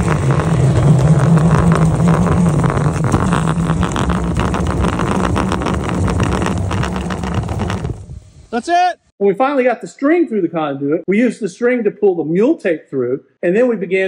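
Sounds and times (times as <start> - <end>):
string spool whirring and clicking: 0.0 - 8.1
shop vac sucking: 0.0 - 8.6.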